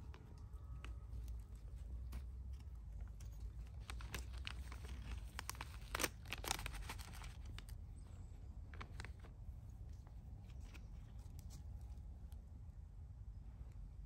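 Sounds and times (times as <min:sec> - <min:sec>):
plastic packet crinkling: 0:00.0 - 0:07.9, 0:08.7 - 0:09.4
low steady rumble: 0:00.0 - 0:14.0.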